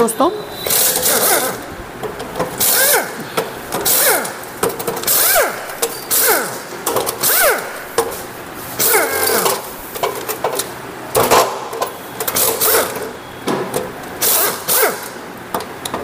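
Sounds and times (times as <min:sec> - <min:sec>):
power tool whirring: 0:00.5 - 0:10.4, 0:12.2 - 0:13.2, 0:14.2 - 0:15.2.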